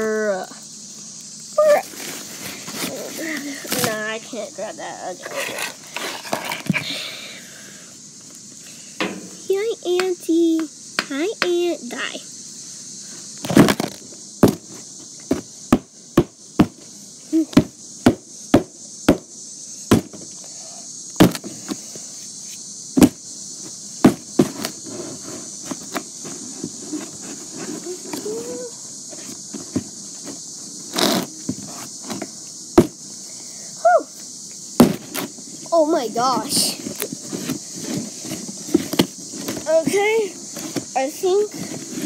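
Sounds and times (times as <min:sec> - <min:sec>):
insects droning: 0:00.0 - 0:42.0
hammer beating on cardboard box: 0:17.6 - 0:19.3, 0:19.9 - 0:20.2, 0:21.2 - 0:21.4.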